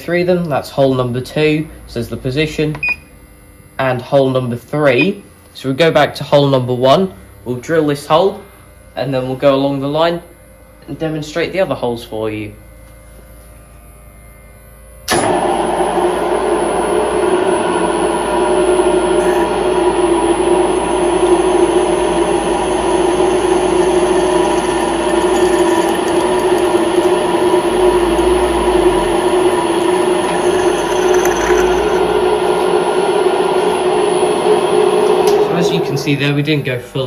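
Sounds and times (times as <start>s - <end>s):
milling machine humming: 13.8s - 37.0s
drill boring into metal: 16.8s - 34.4s.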